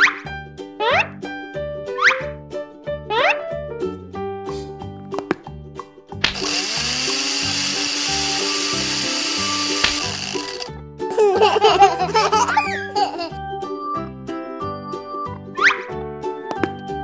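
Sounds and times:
blender motor whining: 0:06.3 - 0:10.7
children's music with steady beat: 0:11.1 - 0:17.0.

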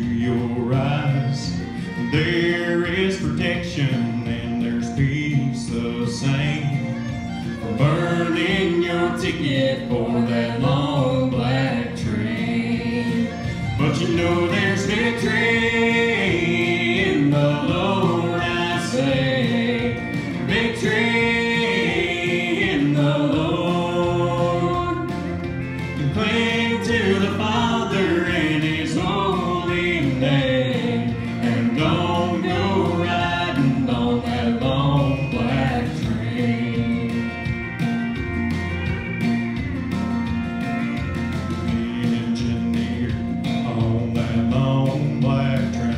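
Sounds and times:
man and boy singing: 0:00.0 - 0:07.0, 0:07.6 - 0:25.4, 0:26.0 - 0:37.6, 0:41.7 - 0:45.9
instrumental accompaniment: 0:00.0 - 0:45.9.

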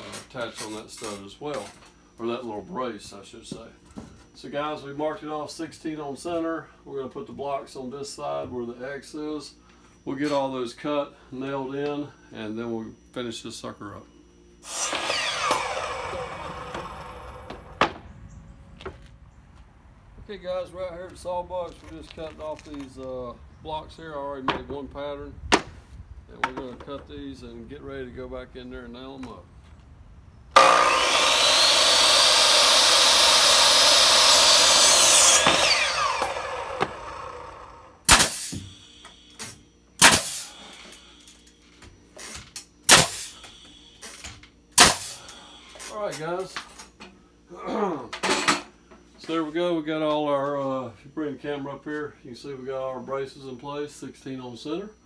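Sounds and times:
miter saw winding down: 0:14.6 - 0:18.0, 0:30.5 - 0:38.9
nail gun shots: 0:35.4 - 0:37.0, 0:38.0 - 0:38.8, 0:39.4 - 0:40.6, 0:42.2 - 0:43.4, 0:44.1 - 0:45.3.

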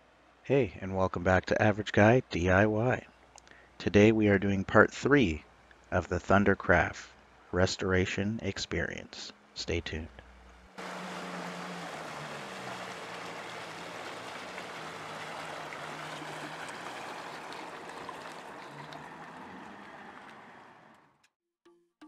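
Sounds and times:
outboard motor running: 0:10.7 - 0:21.2
water rushing in boat wake: 0:10.8 - 0:21.1.

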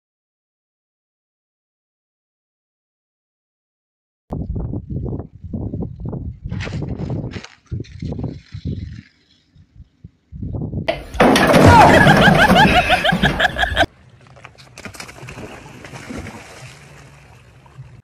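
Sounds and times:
loud shouting: 0:10.9 - 0:13.0
ceramic jars smashing: 0:10.9 - 0:13.9
liquid splashing on ground: 0:14.4 - 0:17.9.

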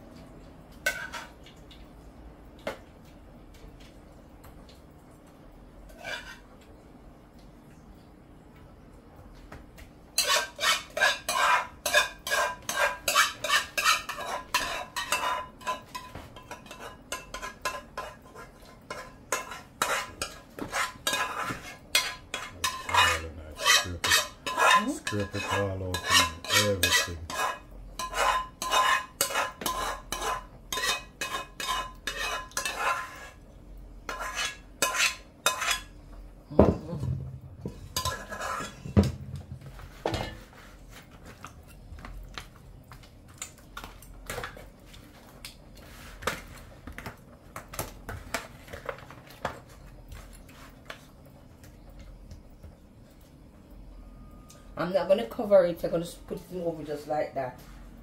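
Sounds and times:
metal spoon scraping a pot: 0:00.8 - 0:01.3, 0:05.9 - 0:06.5, 0:10.2 - 0:33.4, 0:34.1 - 0:35.9, 0:37.7 - 0:39.0
pot knocking down on surface: 0:36.6 - 0:40.4.

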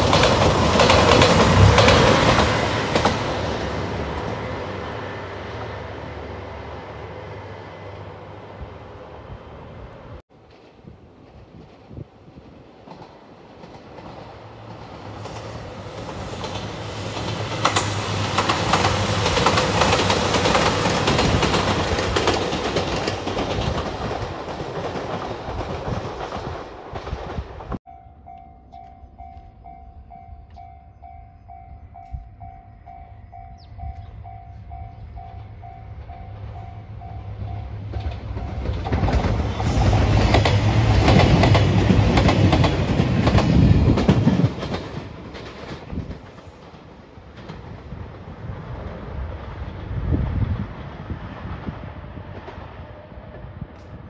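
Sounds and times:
level crossing warning bell: 0:00.0 - 0:01.3, 0:27.9 - 0:38.8
train wheels clattering: 0:00.0 - 0:04.4, 0:10.4 - 0:27.8, 0:35.0 - 0:49.6.

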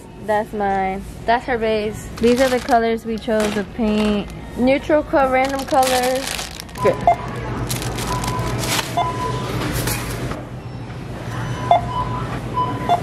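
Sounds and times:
barcode scanner beeping: 0:06.7 - 0:09.5.

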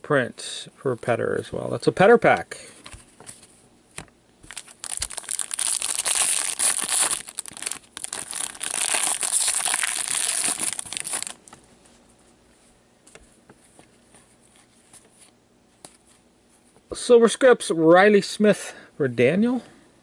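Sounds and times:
foil wrapper tearing and crinkling: 0:04.4 - 0:11.4.

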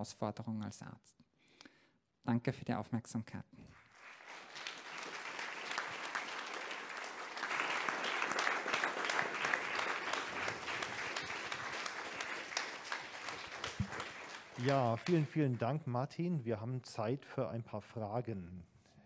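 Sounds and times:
audience applauding: 0:03.8 - 0:15.8.

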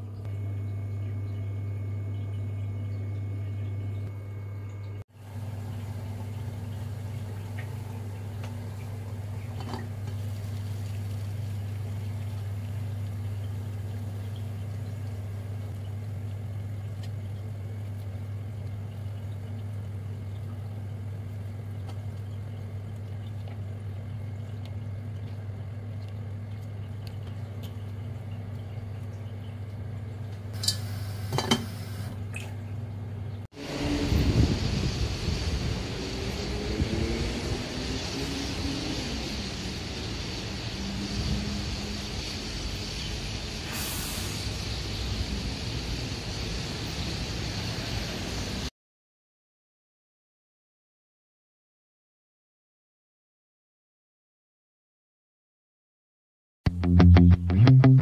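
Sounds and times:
induction cooktop hum: 0:00.0 - 0:48.7
faint water sounds: 0:02.1 - 0:34.9
wind noise: 0:33.7 - 0:39.1.

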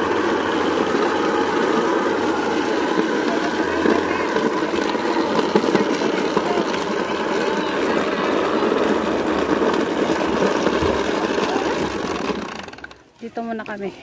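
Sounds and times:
motor engine running: 0:00.0 - 0:13.6
indistinct voices: 0:00.0 - 0:14.0.

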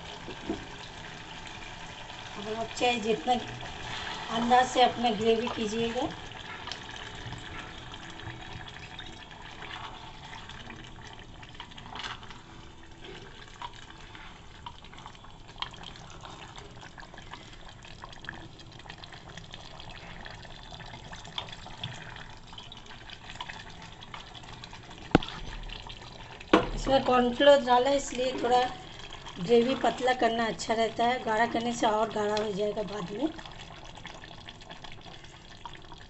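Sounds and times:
gravy cooking hiss: 0:00.0 - 0:11.2
water pouring into pot: 0:00.0 - 0:36.0.

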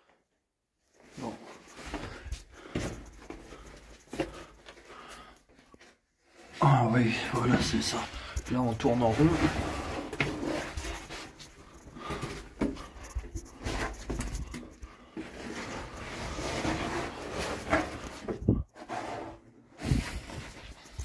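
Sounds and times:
person breathing heavily: 0:01.7 - 0:05.6, 0:09.6 - 0:13.7.

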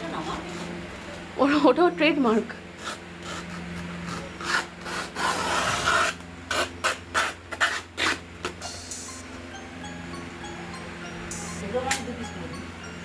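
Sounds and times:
low steady hum: 0:08.0 - 0:13.0.

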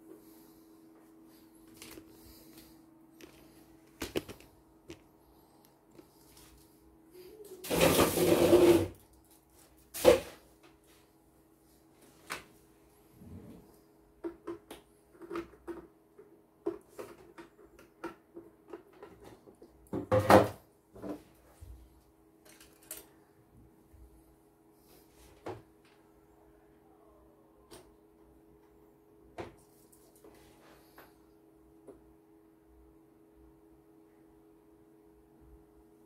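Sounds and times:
loud scrape: 0:07.7 - 0:09.0
faint low hum: 0:09.0 - 0:36.0.

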